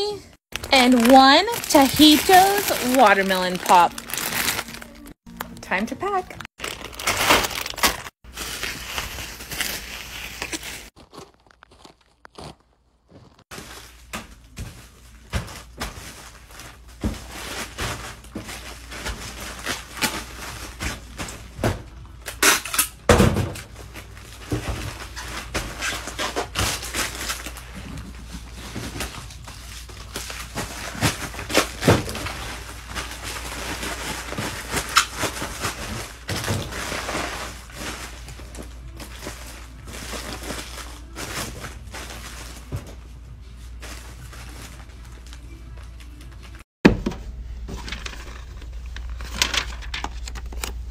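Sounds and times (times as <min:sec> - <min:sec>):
bubble wrap crinkling: 0:00.5 - 0:05.6, 0:06.4 - 0:21.2.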